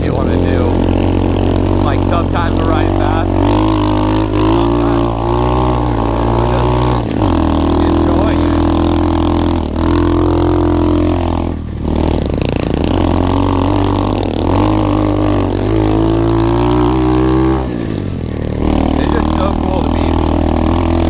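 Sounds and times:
motorcycle engine revving: 0:00.0 - 0:21.0.

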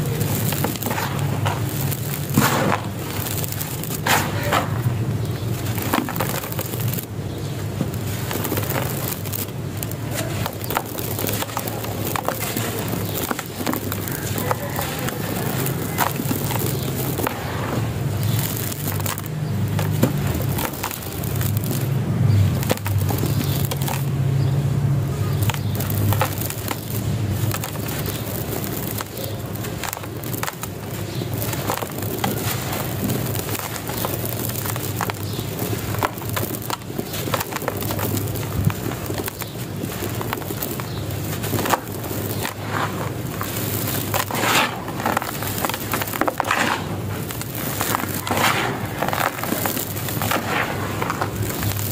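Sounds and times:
dry soil crumbling and crunching: 0:00.0 - 0:51.9.

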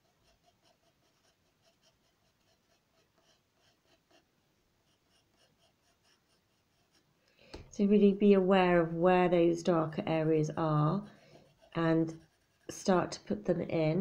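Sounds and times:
pencil scratching on paper: 0:00.0 - 0:07.2, 0:11.1 - 0:13.4.

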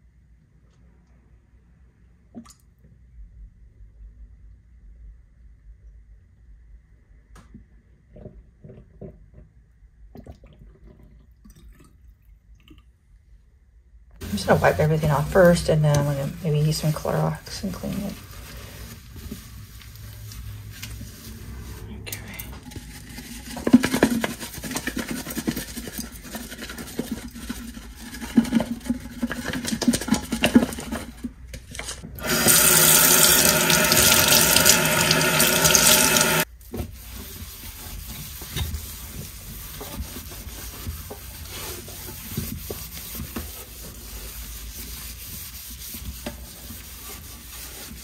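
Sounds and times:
tap running into sink: 0:32.1 - 0:36.4.

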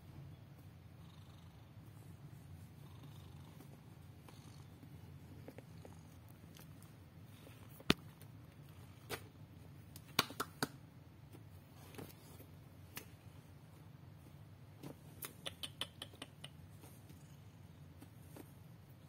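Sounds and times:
cat purring: 0:00.7 - 0:09.4.

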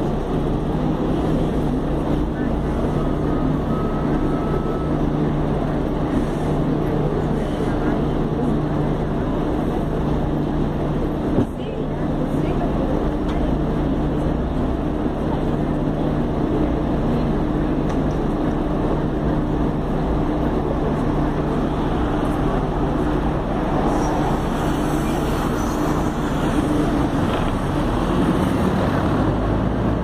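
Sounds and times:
bus engine idling: 0:00.0 - 0:30.0.

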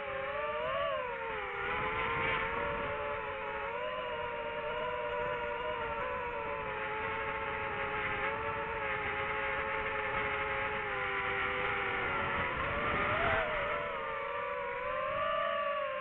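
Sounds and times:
drone propellers whining: 0:00.0 - 0:16.0.

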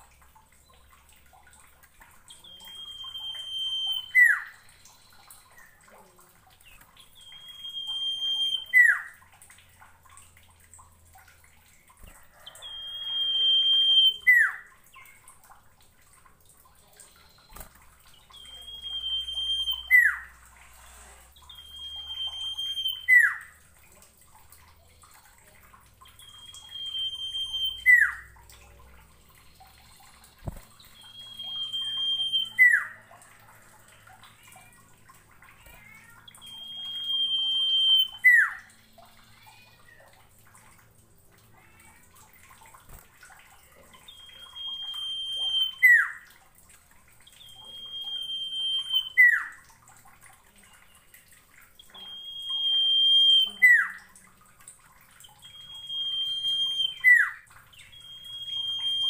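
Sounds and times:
bird whistling song: 0:02.4 - 0:05.7, 0:07.1 - 0:09.2, 0:12.4 - 0:15.1, 0:17.1 - 0:20.4, 0:21.4 - 0:23.6, 0:26.1 - 0:28.3, 0:29.5 - 0:33.0, 0:36.3 - 0:38.7, 0:44.0 - 0:46.2, 0:47.3 - 0:49.5, 0:51.8 - 0:54.0, 0:55.2 - 0:59.0.

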